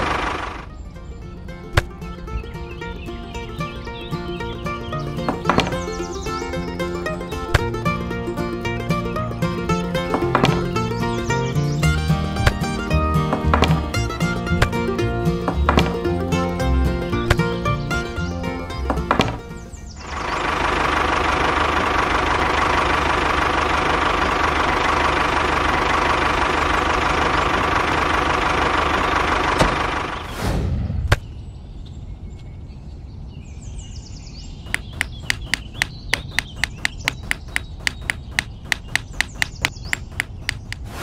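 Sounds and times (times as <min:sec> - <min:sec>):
short whoosh: 0:30.2 - 0:31.4, 0:40.8 - 0:41.0
faint chirping: 0:33.9 - 0:41.0
fast evenly spaced clicks: 0:34.7 - 0:40.9.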